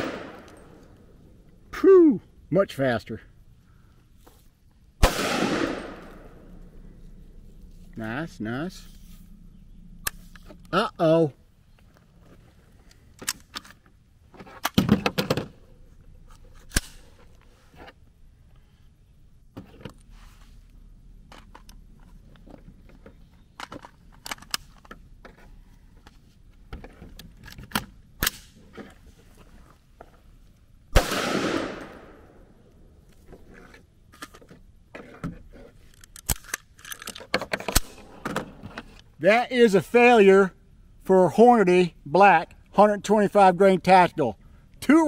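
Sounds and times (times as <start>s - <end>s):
rifle shot with echo: 0.0s - 0.8s, 5.0s - 6.5s, 30.9s - 32.5s
rifle action clicking and rattling: 12.8s - 13.9s, 23.5s - 25.0s, 27.1s - 28.5s, 35.8s - 39.1s.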